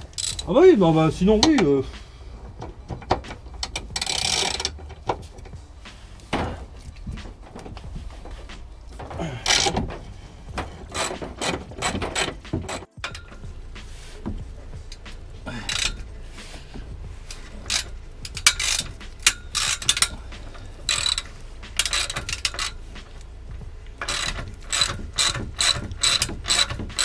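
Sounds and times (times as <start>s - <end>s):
ratchet wrench clicking: 0.0s - 0.5s, 2.5s - 5.6s, 9.4s - 9.8s, 10.6s - 13.5s, 14.9s - 16.1s, 17.2s - 23.3s, 23.9s - 27.0s.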